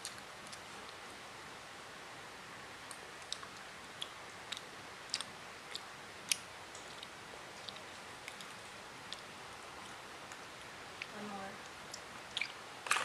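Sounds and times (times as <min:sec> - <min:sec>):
child chewing: 0:02.9 - 0:11.1, 0:11.7 - 0:13.0.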